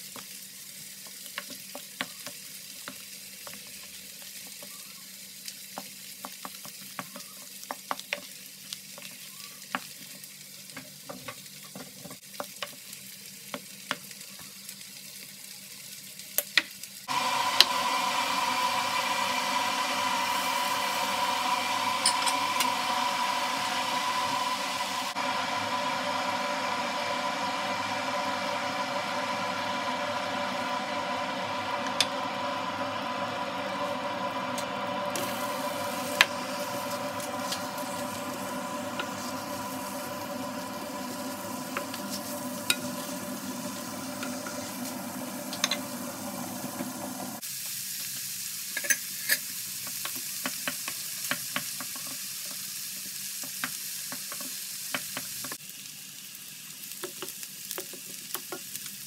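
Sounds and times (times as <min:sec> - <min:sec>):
onions sizzling in a pan: 0:00.0 - 0:59.0
steady hum: 0:17.1 - 0:47.4.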